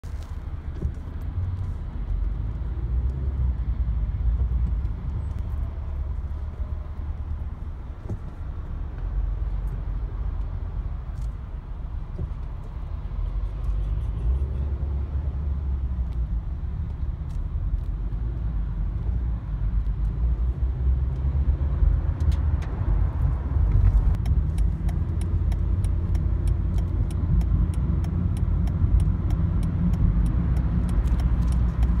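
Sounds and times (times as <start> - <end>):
car road noise rumble: 0.0 - 32.0
light rapid ticks: 24.1 - 32.0.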